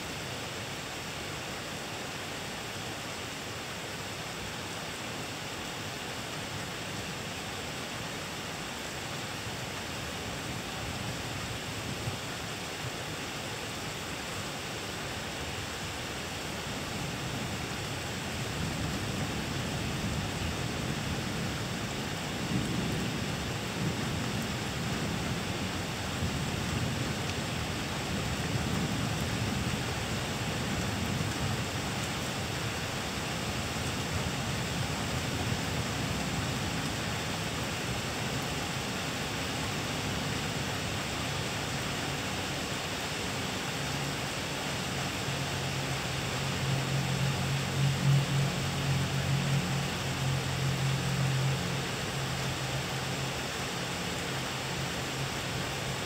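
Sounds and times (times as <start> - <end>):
rain falling: 0.0 - 56.0.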